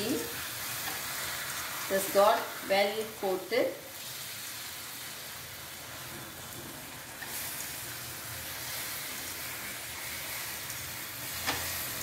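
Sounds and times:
fruit sizzling in a pan: 0.0 - 12.0.

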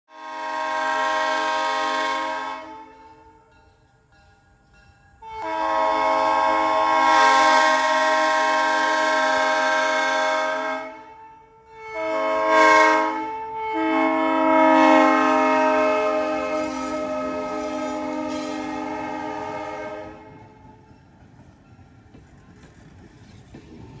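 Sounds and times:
locomotive air horn blasts: 0.1 - 3.5, 5.2 - 20.8.

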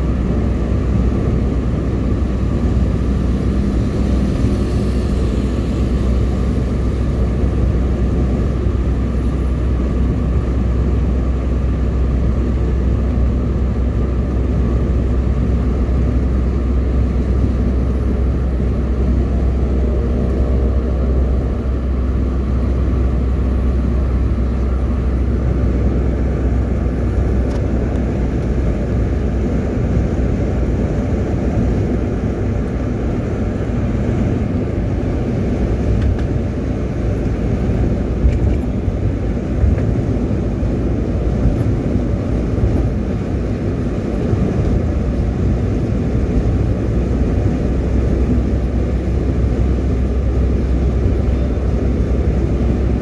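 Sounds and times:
car road and engine rumble: 0.0 - 53.0.

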